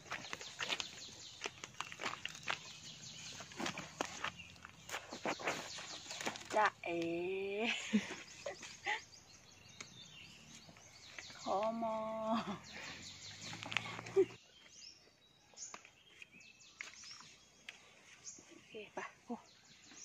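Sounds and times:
dry leaves crackling: 0:00.0 - 0:06.7
small birds chirping: 0:00.0 - 0:20.0.

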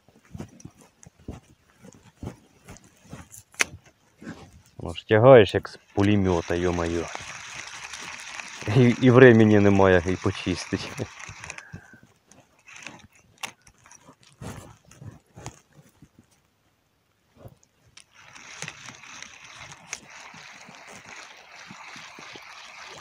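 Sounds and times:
fishing reel winding: 0:05.6 - 0:15.6, 0:18.0 - 0:23.0
fishing reel handling clicks: 0:06.0 - 0:11.8, 0:12.6 - 0:13.9.

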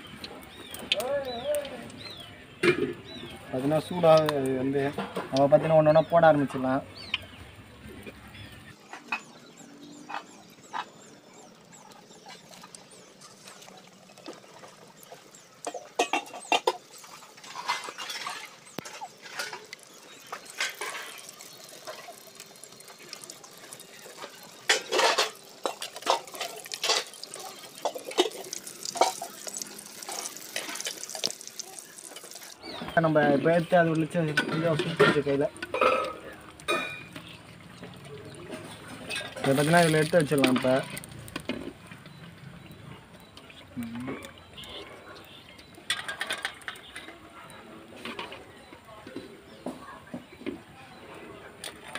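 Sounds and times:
battered fruit frying in oil: 0:00.0 - 0:51.9.

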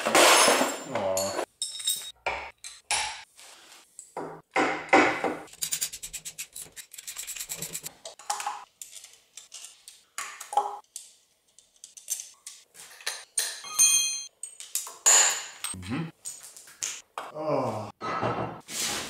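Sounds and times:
metal knocks and clinks: 0:00.0 - 0:03.2, 0:12.0 - 0:15.8.

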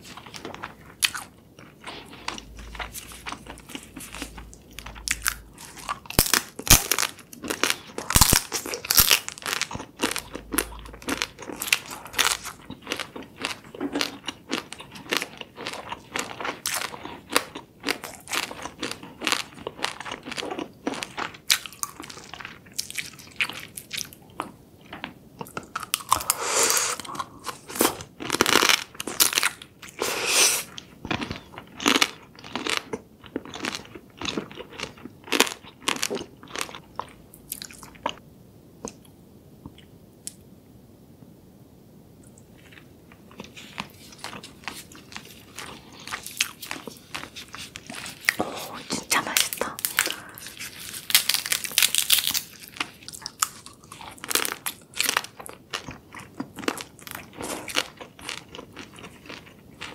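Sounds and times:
chewing: 0:08.7 - 0:38.2, 0:42.6 - 0:59.9.

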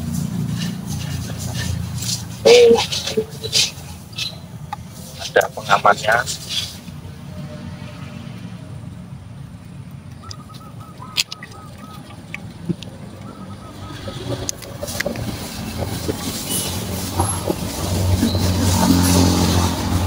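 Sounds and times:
hand tools clicking and scraping: 0:00.0 - 0:07.0, 0:13.9 - 0:20.0
passing vehicle engine rumble: 0:00.0 - 0:20.0.

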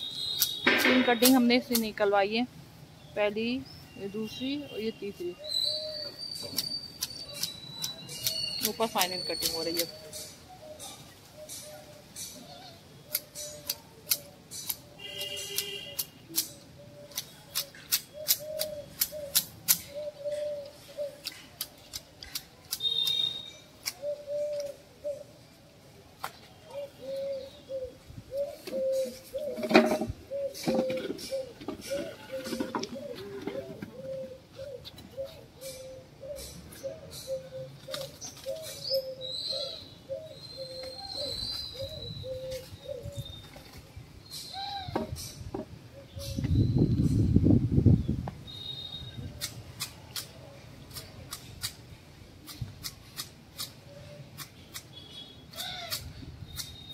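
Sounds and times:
high whistled bird call: 0:00.0 - 0:01.5, 0:05.4 - 0:10.2, 0:22.7 - 0:24.7, 0:48.5 - 0:49.4, 0:56.5 - 0:56.9
sharp clicks: 0:00.3 - 0:01.9, 0:13.1 - 0:19.9, 0:21.2 - 0:24.0
hedge shears snipping: 0:00.4 - 0:02.1, 0:06.4 - 0:10.3, 0:13.1 - 0:20.0, 0:21.0 - 0:24.7, 0:49.4 - 0:55.0
dove cooing: 0:16.3 - 0:21.4, 0:23.9 - 0:25.4, 0:26.7 - 0:43.3.

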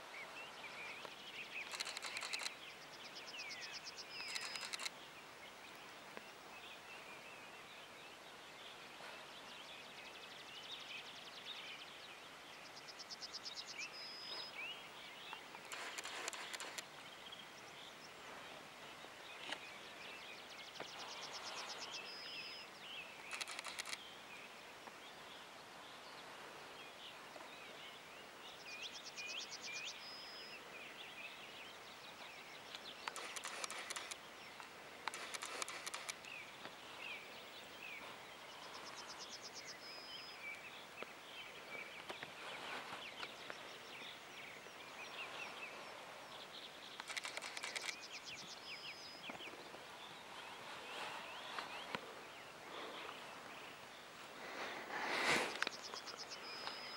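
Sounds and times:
bird trilling song: 0:00.8 - 0:04.9, 0:55.5 - 0:56.9.

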